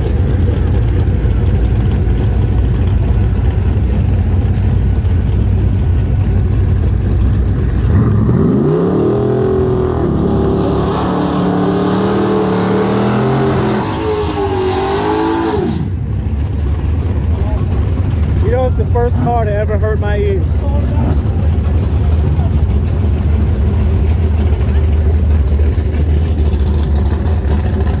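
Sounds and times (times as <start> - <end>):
drag car engine accelerating: 0.0 - 28.0.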